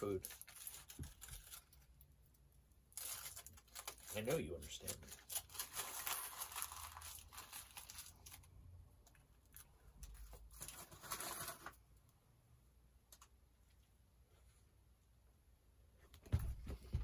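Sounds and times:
aluminium foil crinkling: 0.0 - 8.5, 9.1 - 11.8.

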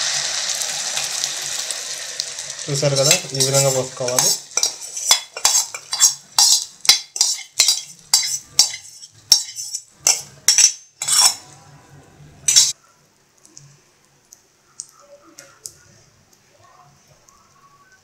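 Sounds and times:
omelette sizzling in oil: 0.0 - 11.5, 12.4 - 12.8
metal utensil scraping cookware: 2.9 - 11.5, 12.5 - 12.8.

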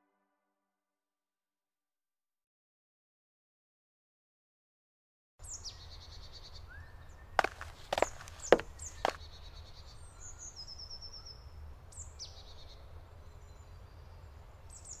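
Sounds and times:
footsteps on gravel: 7.4 - 9.2.

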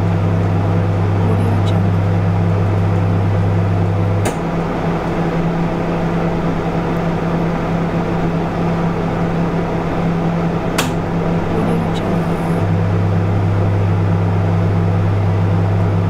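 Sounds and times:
microwave oven humming: 0.0 - 16.0
microwave click: 4.1 - 4.6, 10.7 - 11.2.

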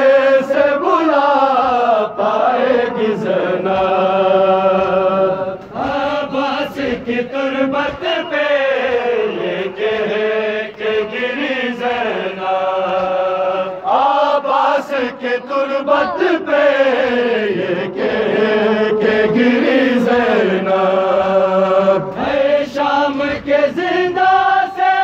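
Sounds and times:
men chanting into microphone: 0.0 - 25.0.

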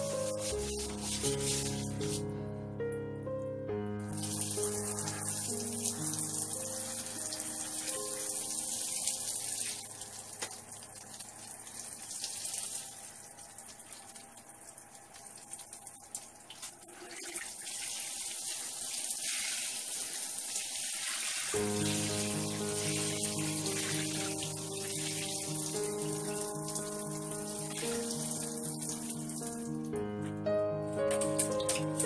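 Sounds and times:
water splashing onto tiles: 0.0 - 2.2, 4.1 - 29.9, 31.1 - 32.0
background music: 0.0 - 10.2, 21.6 - 32.0.

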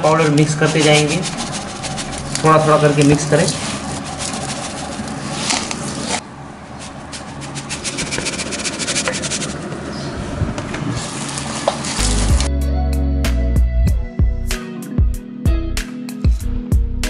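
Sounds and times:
hands rubbing food on steel plate: 0.1 - 9.7.

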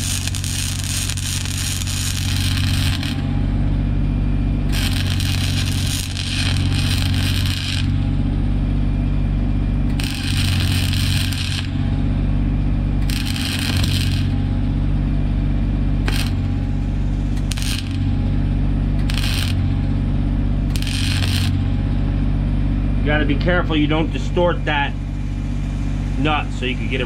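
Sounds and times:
arc welding crackling: 0.0 - 3.6, 4.6 - 15.2, 15.9 - 22.0
low engine hum: 0.0 - 27.0.

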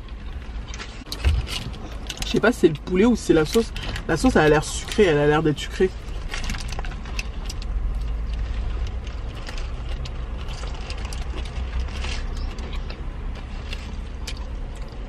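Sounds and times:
car cabin rumble: 0.0 - 15.0
chewing clicks: 6.0 - 15.0
paper wrapper crinkling: 8.4 - 12.8.

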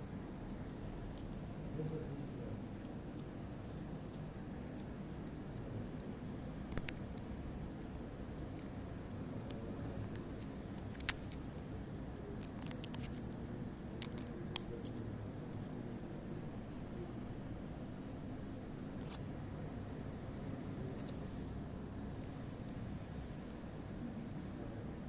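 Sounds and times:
low background hum: 0.0 - 25.0.

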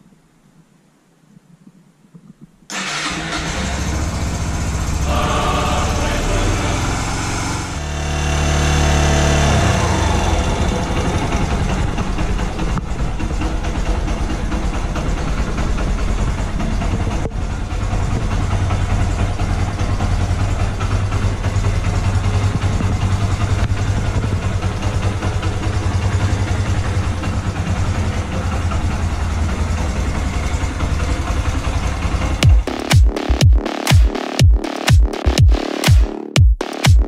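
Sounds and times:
motorcycle engine idling: 2.8 - 8.2, 9.5 - 33.6.

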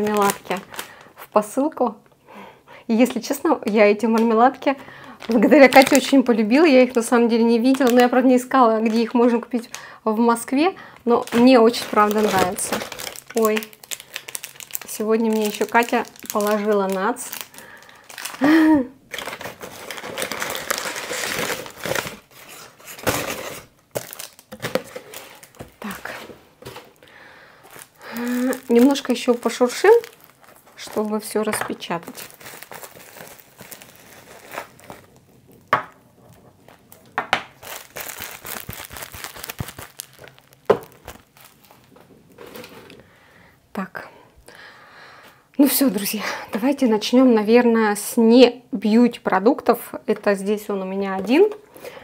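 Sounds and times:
packaging rustling and crinkling: 0.0 - 1.2, 3.6 - 9.8, 11.0 - 43.1.

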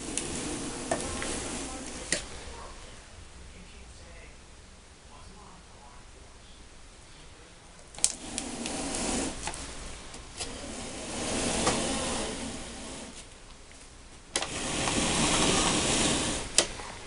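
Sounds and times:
helmet scraping against stand: 0.0 - 2.3, 8.0 - 13.4, 14.4 - 17.0.

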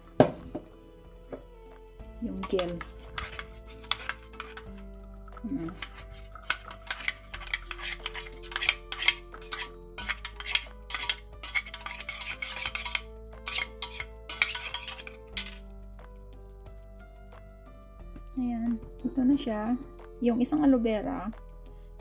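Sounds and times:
soft background music: 0.0 - 22.0
metal spoon scraping strainer: 2.3 - 15.6.

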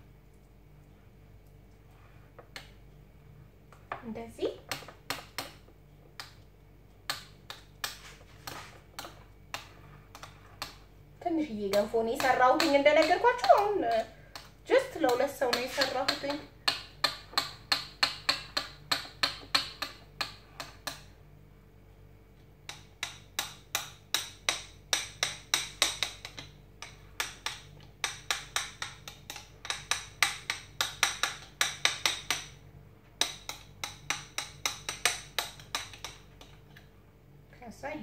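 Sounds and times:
metal spoon knocking ceramic bowl: 11.7 - 21.0.

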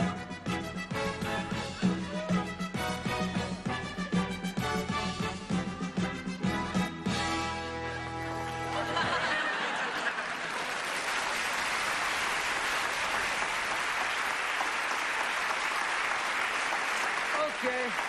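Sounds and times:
audience applauding: 8.1 - 18.0.

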